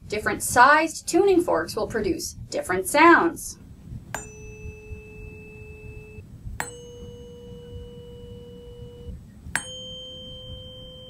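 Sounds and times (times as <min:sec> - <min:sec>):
rubber mallet striking tuning fork: 0:04.1 - 0:11.0
tuning forks ringing: 0:04.2 - 0:11.0.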